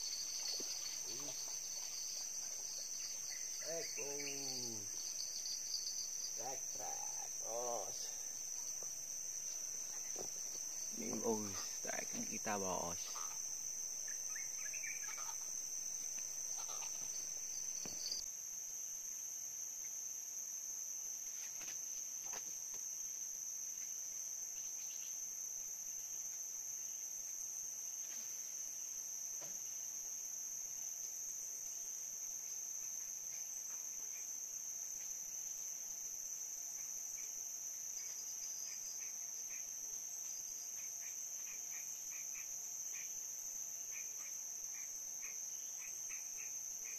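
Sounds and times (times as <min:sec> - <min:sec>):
insects droning: 0:00.0 - 0:46.9.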